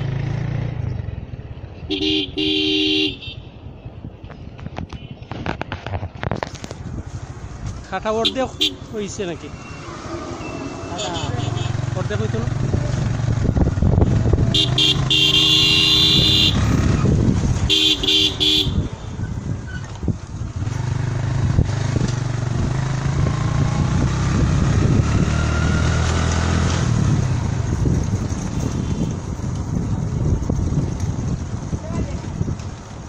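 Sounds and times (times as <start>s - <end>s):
horn blasts: 14.5s - 16.7s, 17.7s - 18.9s.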